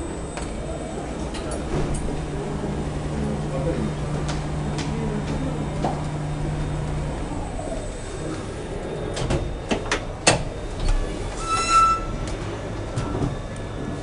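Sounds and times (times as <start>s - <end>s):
elevator drive humming: 0.0s - 14.0s.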